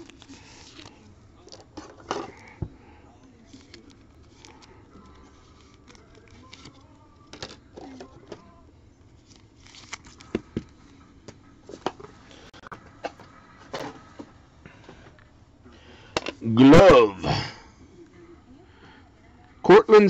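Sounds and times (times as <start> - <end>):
cards clicking and rustling: 0.0 - 2.6, 3.5 - 8.5, 9.1 - 12.2.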